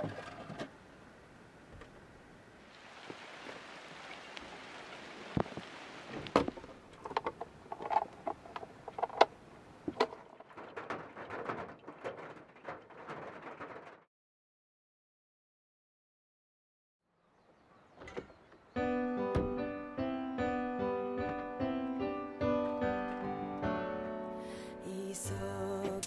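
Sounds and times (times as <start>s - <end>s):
rain on roof: 2.8s - 7.4s, 9.9s - 14.1s.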